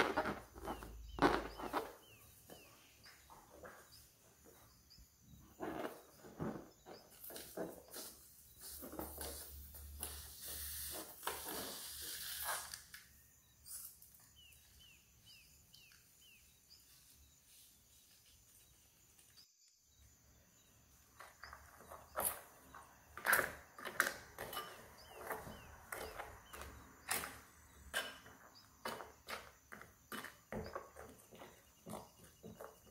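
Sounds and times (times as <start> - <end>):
short chirping squeaks: 10.1 - 13.0.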